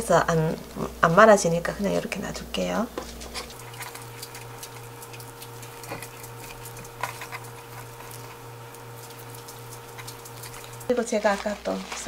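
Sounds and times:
steady low hum: 0:00.0 - 0:12.0
leaves rustling: 0:03.1 - 0:12.0.

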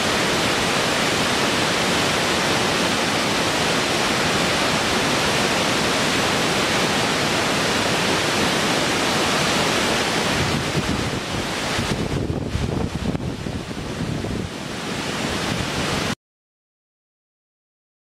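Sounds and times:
waterfall pouring onto rocks: 0:00.0 - 0:13.3.

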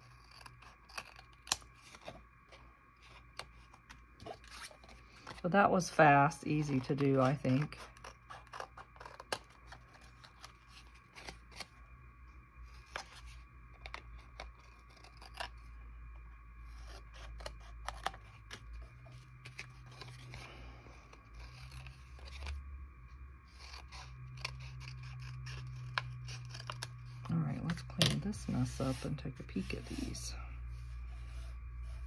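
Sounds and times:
scissors snipping paper: 0:00.0 - 0:02.1, 0:06.5 - 0:10.5, 0:23.6 - 0:28.6.

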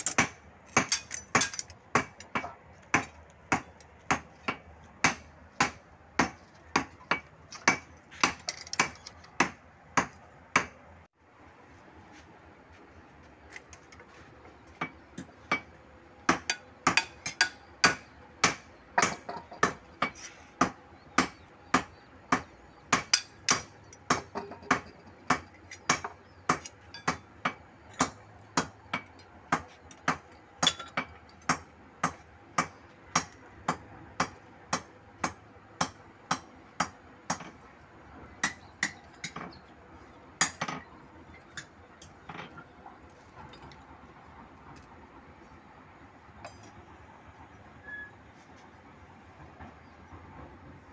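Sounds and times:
hammer striking steel: 0:00.0 - 0:10.8, 0:16.3 - 0:37.6.

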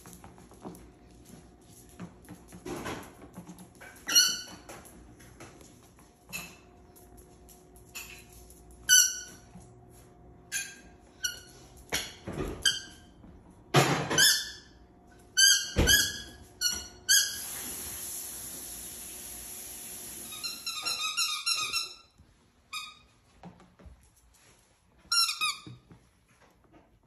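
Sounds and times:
steady hiss: 0:17.4 - 0:20.6.

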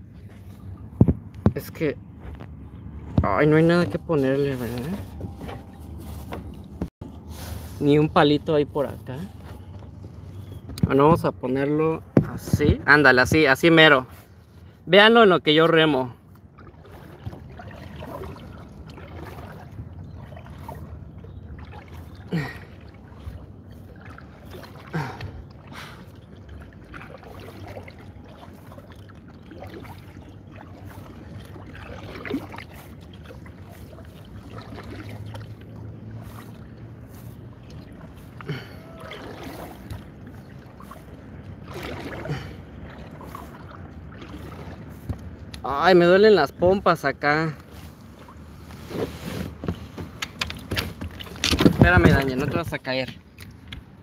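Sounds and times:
low wind rumble on microphone: 0:00.0 - 0:07.3
paddle stroke plunk: 0:00.0 - 0:07.8, 0:15.5 - 0:46.1, 0:47.6 - 0:54.0
wind: 0:00.0 - 0:54.0
water wash: 0:15.1 - 0:54.0.

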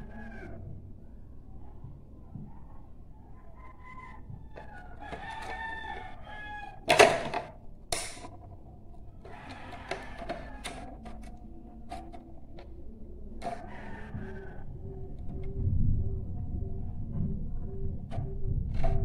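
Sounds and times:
rooster crowing: 0:00.0 - 0:00.8, 0:02.4 - 0:07.4, 0:09.2 - 0:11.6, 0:13.4 - 0:15.1
metal part knocking on table: 0:06.9 - 0:08.4.

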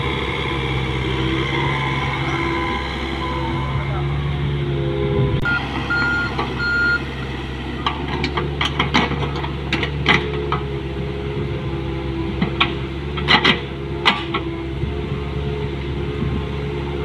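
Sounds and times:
excavator diesel engine running: 0:00.0 - 0:17.0
alarm beeps: 0:05.4 - 0:07.1.

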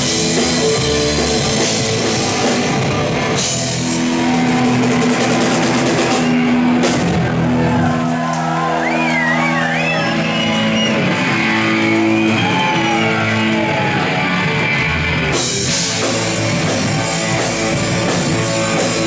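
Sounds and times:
crashing cymbals and drums: 0:00.0 - 0:07.6, 0:15.2 - 0:19.0
electric guitar: 0:00.0 - 0:19.0
live rock band playing: 0:00.0 - 0:19.0.

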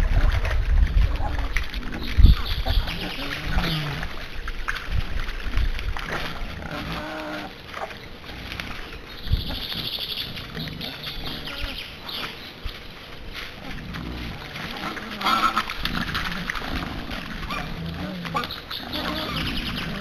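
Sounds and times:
boar grunting: 0:00.0 - 0:04.3, 0:06.0 - 0:08.8, 0:09.4 - 0:12.0, 0:13.6 - 0:20.0
high-pitched animal call: 0:09.3 - 0:12.0, 0:17.5 - 0:20.0.

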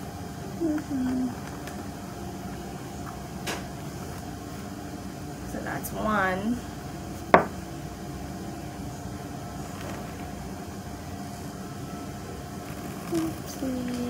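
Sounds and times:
room hum: 0:00.0 - 0:14.0
short low hummed tones: 0:00.0 - 0:14.0
knock on a desk: 0:07.3 - 0:07.6.

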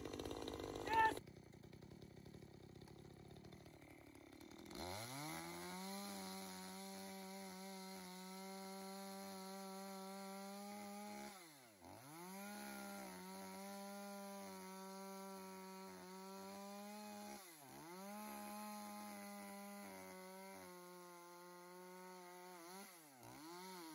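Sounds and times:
chainsaw cutting log: 0:00.0 - 0:23.9.

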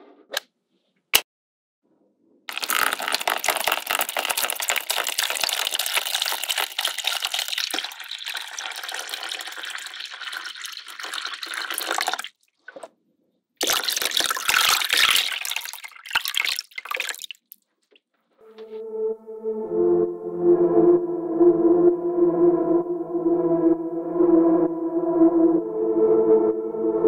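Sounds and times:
water pouring and splashing: 0:02.5 - 0:12.9, 0:13.6 - 0:17.6.

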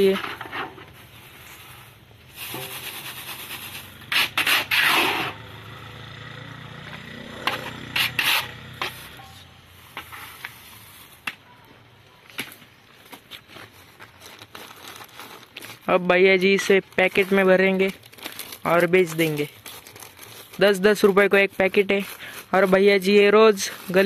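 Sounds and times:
tool scraping sand in a wok: 0:00.3 - 0:05.4, 0:07.4 - 0:09.2, 0:21.6 - 0:24.0
sand hissing through a plastic sieve: 0:01.0 - 0:05.4, 0:09.7 - 0:11.2.

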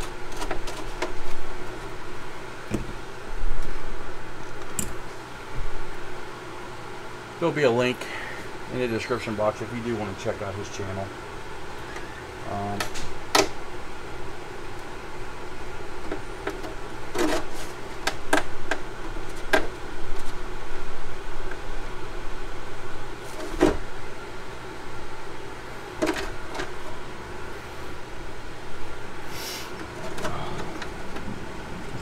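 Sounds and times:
steady background hum: 0:00.0 - 0:32.0.

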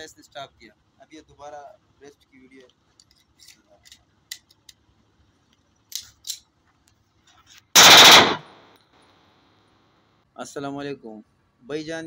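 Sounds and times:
pistol firing rapid shots: 0:07.8 - 0:08.6
gunshot echo: 0:07.8 - 0:08.7.

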